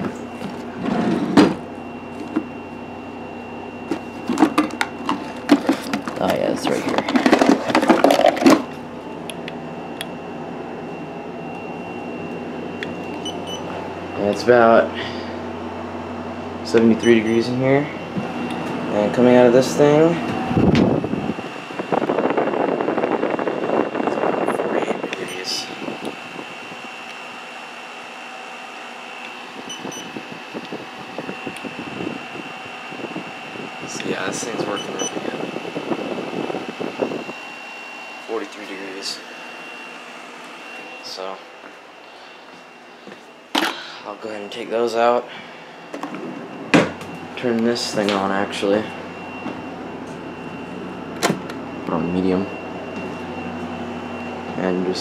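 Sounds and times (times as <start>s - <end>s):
faint steady whine: 0.0s - 55.0s
window air conditioner humming: 0.0s - 55.0s
objects clattering and knocking: 3.9s - 8.7s.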